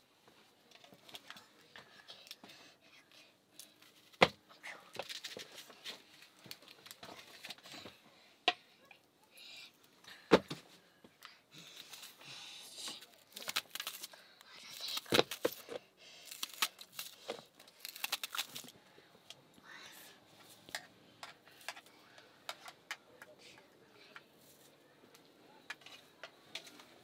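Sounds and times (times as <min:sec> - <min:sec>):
crinkling and rustling: 0:03.6 - 0:08.0, 0:12.8 - 0:18.8.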